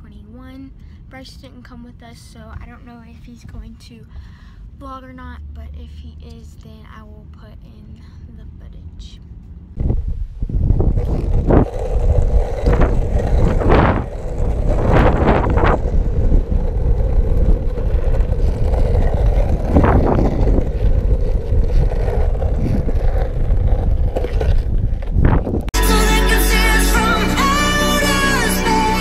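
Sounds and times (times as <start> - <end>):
wind buffeting microphone: 9.7 - 25.8
skateboard wheels rolling on asphalt: 9.8 - 25.7.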